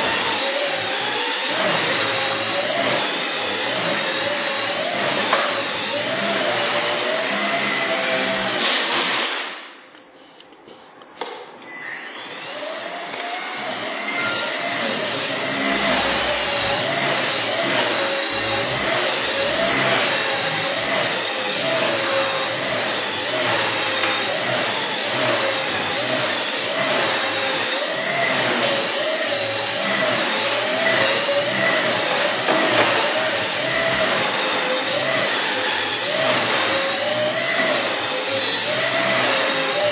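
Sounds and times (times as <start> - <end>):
rc helicopter rotors whining: 0.0 - 9.0, 11.7 - 39.9.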